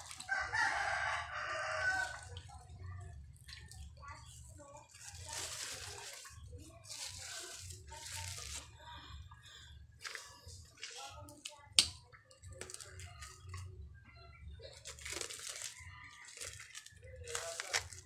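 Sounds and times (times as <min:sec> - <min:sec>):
plastic wrapping crinkling and tearing: 0:00.0 - 0:02.5, 0:04.6 - 0:08.8, 0:10.0 - 0:11.4, 0:12.5 - 0:13.7, 0:14.7 - 0:18.0.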